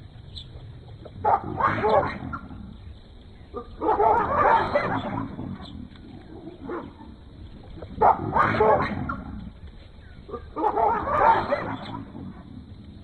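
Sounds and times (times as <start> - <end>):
animals barking and yelping: 0.3 - 13.0.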